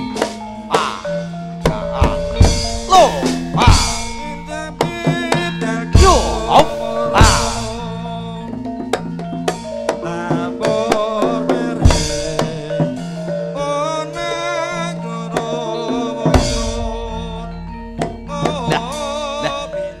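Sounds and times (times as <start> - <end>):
metallophone notes ringing: 0.0 - 20.0
wavering high melody: 0.0 - 20.0
hand drum strokes: 1.6 - 8.0
heavy low drum hit: 1.7 - 4.5, 6.0 - 7.9.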